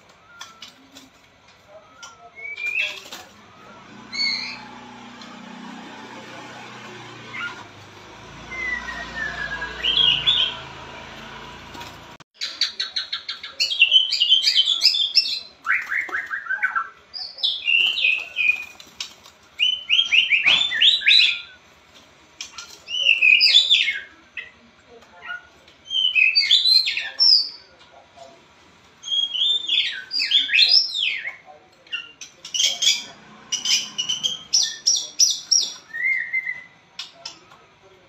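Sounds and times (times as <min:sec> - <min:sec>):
songbird whistling: 0:00.0 - 0:00.9, 0:08.4 - 0:10.7, 0:33.0 - 0:36.8.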